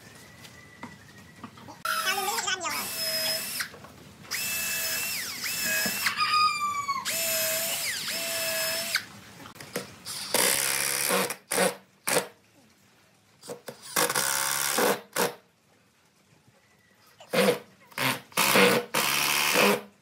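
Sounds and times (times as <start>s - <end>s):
cordless drill boring into wood: 2.7s - 3.7s, 4.3s - 6.2s, 7.0s - 9.1s, 10.1s - 11.8s, 13.8s - 15.3s, 17.3s - 19.9s.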